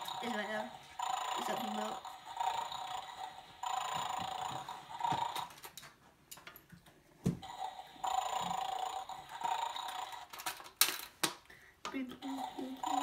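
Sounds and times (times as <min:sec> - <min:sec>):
toy dog electronic snore: 0:00.0 - 0:05.6, 0:07.4 - 0:10.3, 0:12.2 - 0:13.0
plastic clicks: 0:10.2 - 0:12.0.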